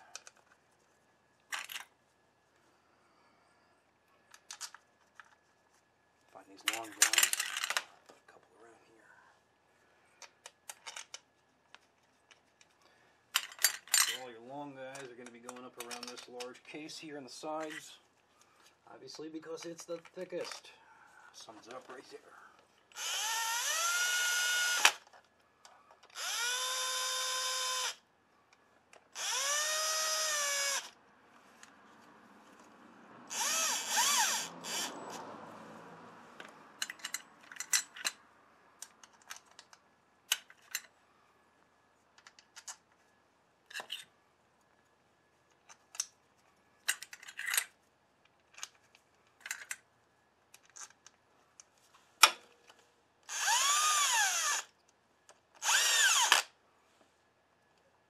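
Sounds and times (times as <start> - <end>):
cordless drill whirring: 22.9 - 25.0, 26.2 - 28.0, 29.2 - 31.0, 33.3 - 35.0, 53.3 - 54.7, 55.6 - 56.5
metallic clicks of bolts and tools: 36.4 - 38.2, 46.8 - 48.8, 49.4 - 49.8.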